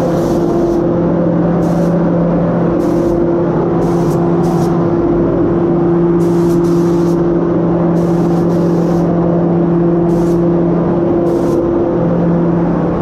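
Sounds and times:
spray gun hissing bursts: 0.0s - 1.0s, 1.6s - 2.2s, 2.8s - 4.9s, 6.2s - 7.3s, 7.9s - 9.2s, 10.0s - 10.6s, 11.2s - 11.8s
loud steady low hum: 0.0s - 13.0s.

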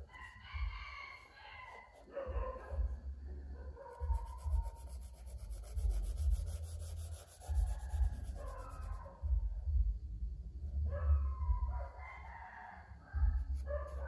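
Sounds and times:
charcoal scratching on paper: 1.2s - 2.1s, 4.0s - 9.2s.

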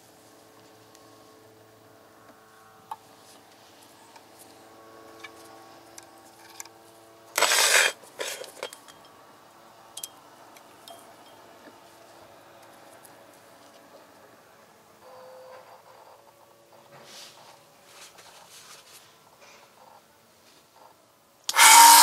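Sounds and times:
metal scraping clatter: 7.4s - 9.0s
metal parts clinking: 7.4s - 9.1s.

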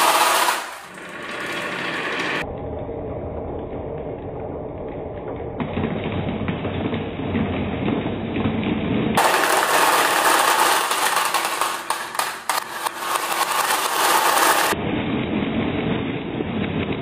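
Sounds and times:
marbles clicking together: 0.0s - 1.7s, 9.2s - 14.8s
marbles rolling on wooden track: 0.0s - 2.4s, 9.2s - 14.8s.

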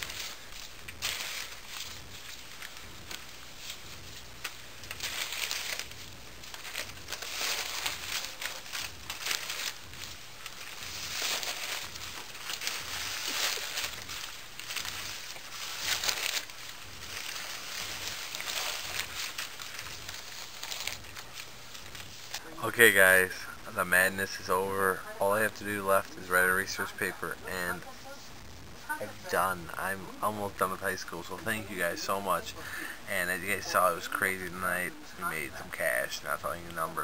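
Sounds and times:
paper bills rustling: 0.0s - 28.0s, 28.9s - 37.0s.

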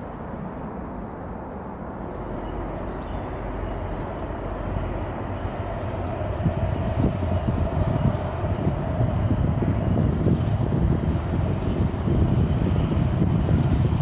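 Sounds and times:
steady whine: 0.0s - 14.0s
tram running rumble: 0.0s - 14.0s.

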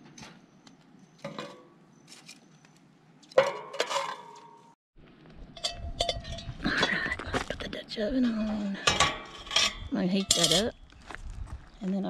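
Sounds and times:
metal tongs clinking on metal: 8.8s - 10.7s.

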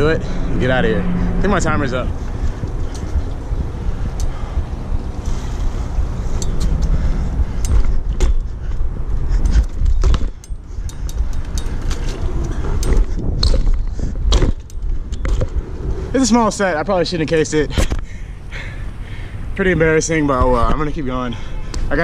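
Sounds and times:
wind buffeting microphone: 0.0s - 22.0s
bike chain rattling: 2.2s - 16.6s
bike rolling over concrete: 5.2s - 16.7s.

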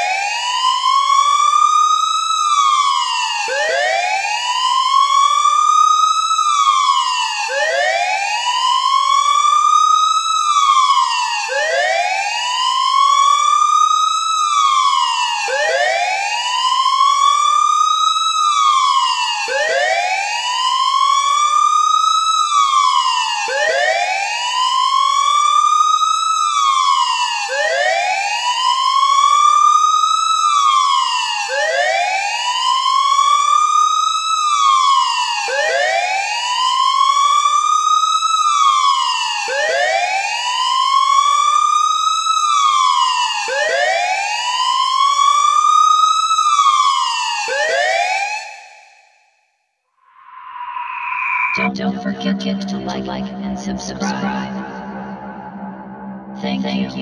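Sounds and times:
siren wailing: 2.4s - 33.6s, 50.1s - 57.0s.

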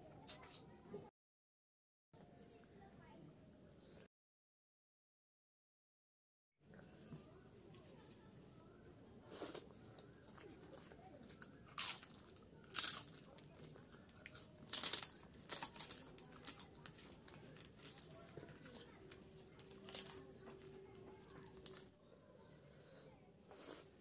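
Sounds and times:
crisp wafer crackling and crunching: 10.3s - 21.9s.

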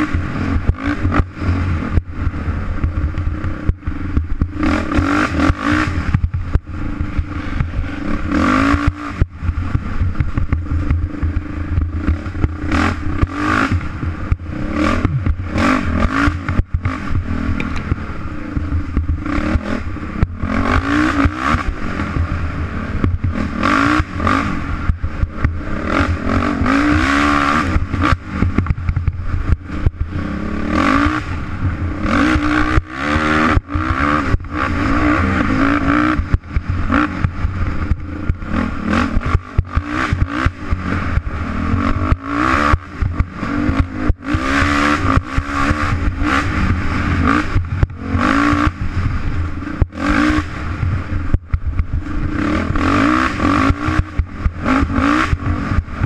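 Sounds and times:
bike rattling over bumps: 0.0s - 56.0s
dirt bike engine revving: 0.0s - 56.0s.

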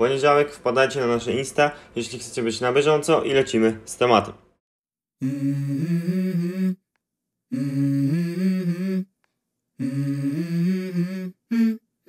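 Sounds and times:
person humming a tune: 5.2s - 6.9s, 7.5s - 9.2s, 9.8s - 12.0s.

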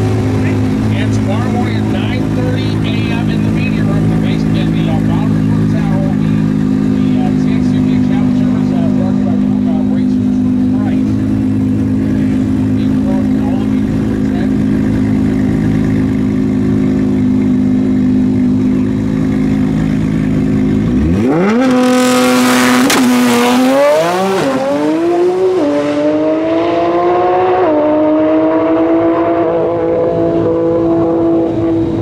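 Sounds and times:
drag car engine revving and launching: 19.3s - 32.0s.

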